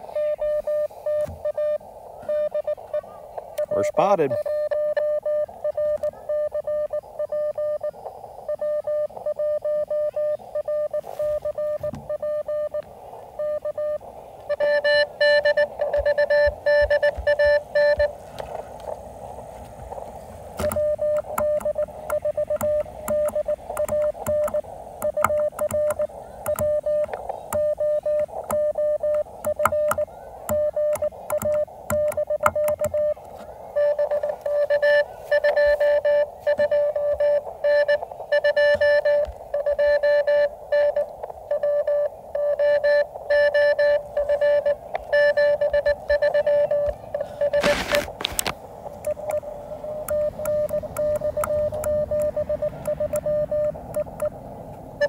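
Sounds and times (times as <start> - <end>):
receiver hiss: 0.0 - 55.0
morse code beeps: 0.1 - 3.0, 3.6 - 12.8, 13.4 - 18.2, 19.9 - 55.0.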